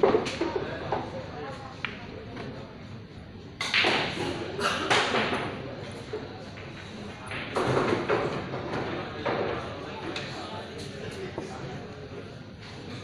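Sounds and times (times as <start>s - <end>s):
people talking: 4.2s - 13.0s
billiard balls knocking: 6.6s - 9.7s.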